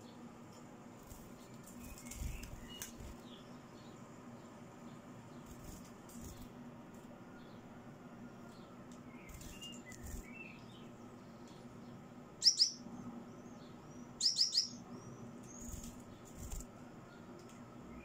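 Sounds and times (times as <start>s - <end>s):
finches chirping: 9.1s - 16.6s.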